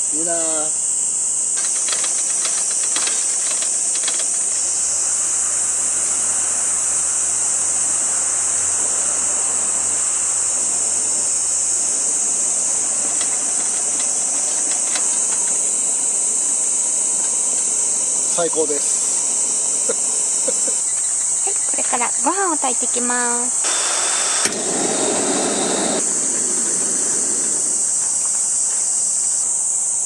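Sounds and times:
high-pitched insect chorus: 0.0 - 30.0
lantern burning with rushing hiss: 0.1 - 30.0.

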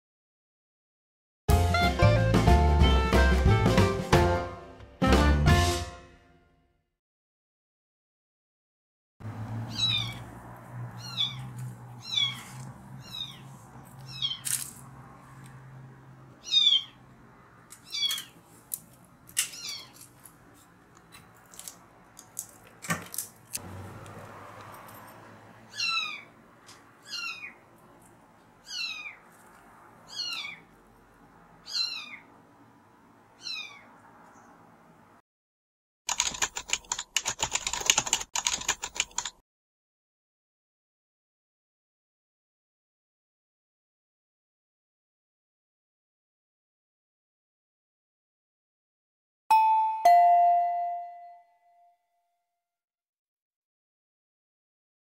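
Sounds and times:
kitten mewing: 9.7 - 10.2.

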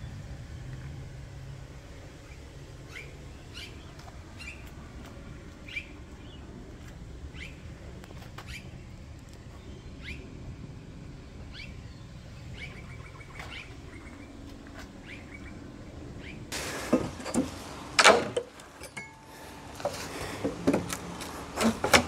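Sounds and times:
birds chirping: 0.0 - 16.5.

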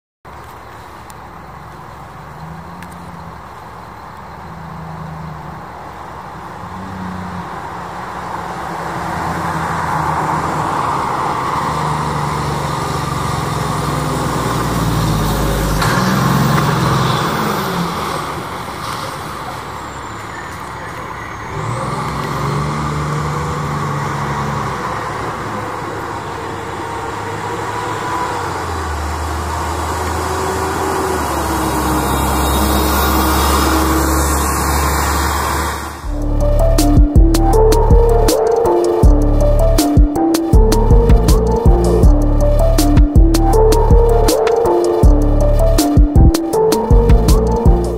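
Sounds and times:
truck tyres on road: 0.2 - 47.9
fire engine diesel engine: 0.3 - 47.9.

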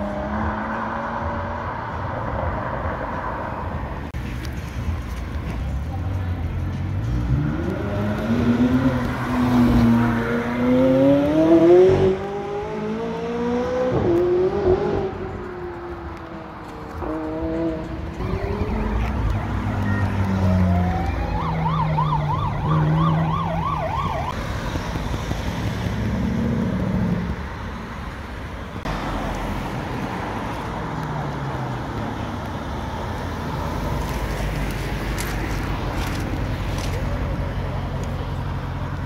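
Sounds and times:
sports car engines revving: 0.0 - 3.6, 6.2 - 21.2, 24.3 - 39.0
emergency siren warbling: 18.2 - 24.4.

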